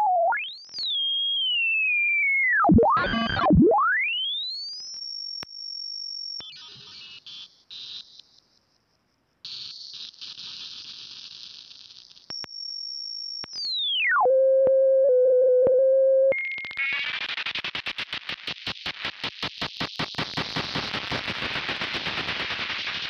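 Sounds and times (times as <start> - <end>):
crackly high hiss: 19.9 - 23.0.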